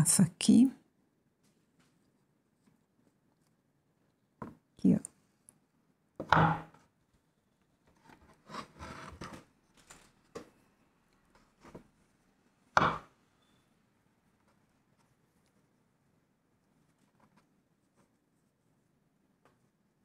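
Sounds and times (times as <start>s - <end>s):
wooden knocks: 6.2s - 6.8s, 12.8s - 13.1s
wood scraping on tabletop: 8.0s - 9.4s.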